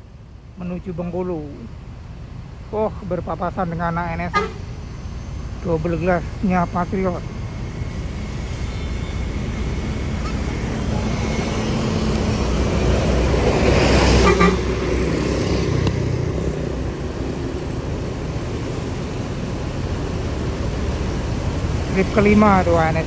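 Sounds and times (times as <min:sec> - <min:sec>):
horn toot: 0:04.3 - 0:04.7, 0:14.0 - 0:14.9.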